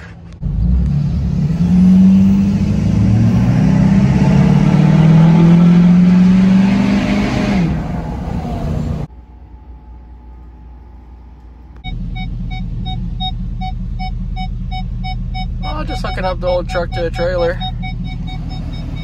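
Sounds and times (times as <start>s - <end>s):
diesel engine accelerating: 0.0s - 19.0s.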